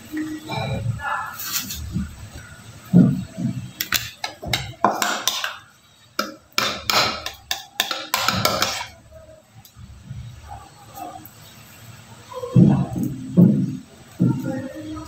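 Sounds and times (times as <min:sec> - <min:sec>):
metal spatula scraping glass bowl: 0:06.2 - 0:09.0.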